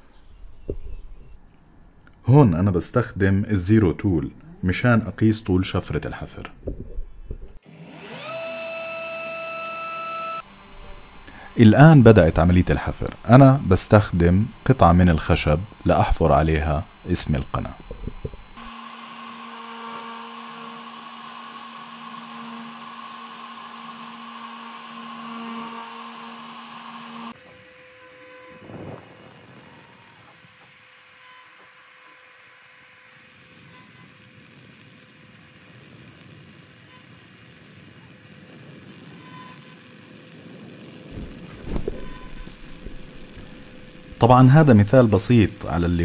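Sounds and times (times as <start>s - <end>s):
router spindle whine: 3.6s - 46.0s.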